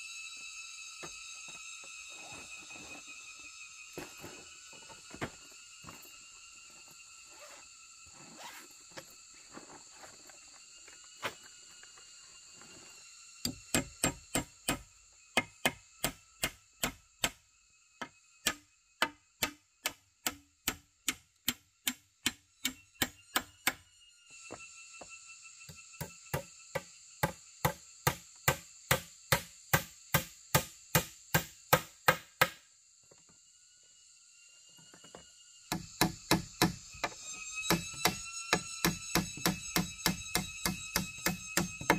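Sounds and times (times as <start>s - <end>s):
tool striking wood: 15.4s - 17.4s, 18.0s - 23.8s, 26.0s - 32.6s, 35.7s - 41.9s.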